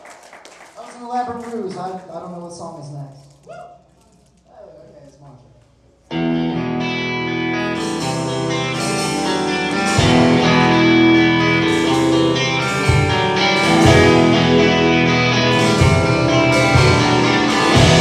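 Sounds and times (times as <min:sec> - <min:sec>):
electric guitar chords: 0:06.1 - 0:18.0
drums playing: 0:07.6 - 0:18.0.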